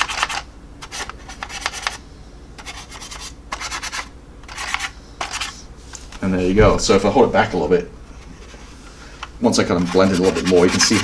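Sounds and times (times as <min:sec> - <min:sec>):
brush rubbing on plastic: 0:02.6 - 0:06.5, 0:09.5 - 0:11.0.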